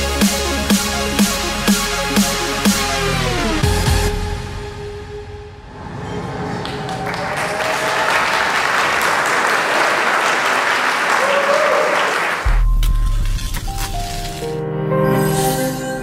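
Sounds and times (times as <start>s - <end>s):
audience applauding: 6.4s - 12.6s.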